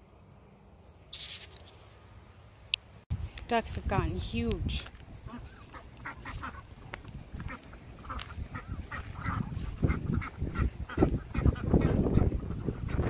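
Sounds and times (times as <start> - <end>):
ducks quacking: 5.2 - 13.0.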